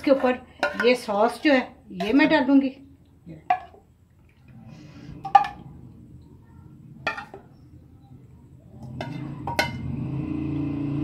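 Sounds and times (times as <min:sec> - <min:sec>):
spoon scraping pan: 0:08.8 - 0:09.9.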